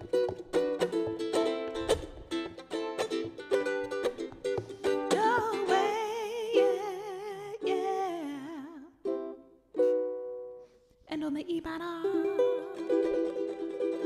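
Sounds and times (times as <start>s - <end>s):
ukulele strumming chords: 0.0s - 10.7s, 11.6s - 14.0s
woman singing with vibrato: 5.0s - 9.0s, 11.1s - 12.9s.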